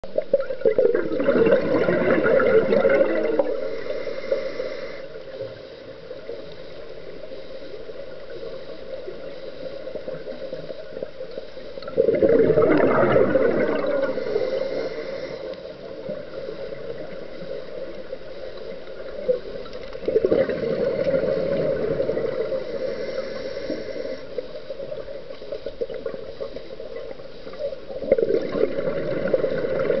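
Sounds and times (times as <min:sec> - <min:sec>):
steady underwater hiss: 0:00.0 - 0:30.0
regulator breath bubbling: 0:00.2 - 0:05.4, 0:11.8 - 0:15.9, 0:28.1 - 0:30.0.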